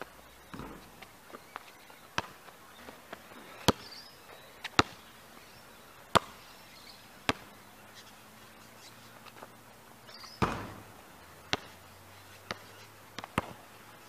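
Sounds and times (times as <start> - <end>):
basketball bouncing on asphalt: 0.0 - 7.7, 9.2 - 14.0.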